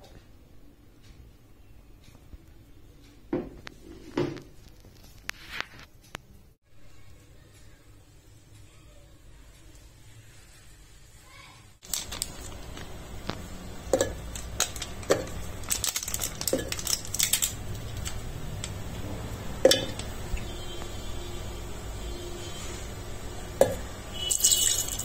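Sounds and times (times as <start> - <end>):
chocolate pieces clinking in metal jar: 14.0 - 18.1, 24.3 - 25.0.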